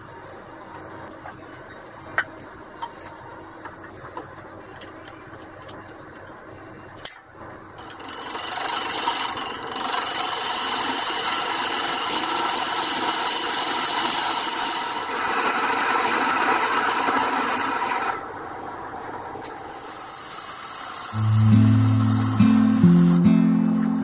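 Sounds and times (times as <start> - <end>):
wood lathe humming: 8.2 - 18.2.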